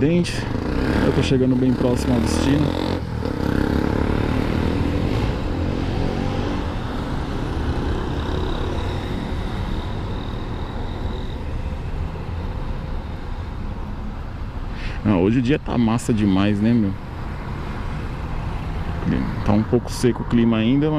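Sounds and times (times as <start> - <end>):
road and wind noise: 0.0 - 20.9
faint high whine: 6.7 - 17.3.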